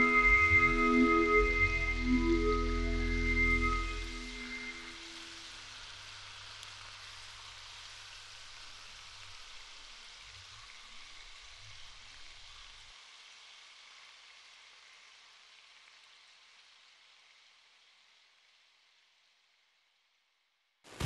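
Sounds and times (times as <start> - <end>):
low hum: 0.0 - 5.3
faint steady hiss: 0.0 - 21.0.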